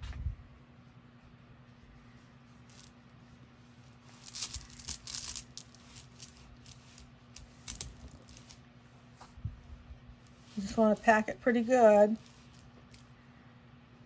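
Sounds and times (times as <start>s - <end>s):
fiberfill rustling and crackling: 3.6s - 8.6s.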